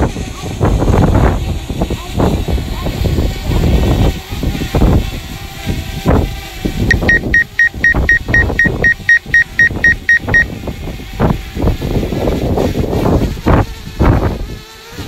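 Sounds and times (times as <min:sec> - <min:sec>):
wind noise on microphone: 0:00.0 - 0:15.0
rapid electronic warning beeps: 0:06.9 - 0:10.5.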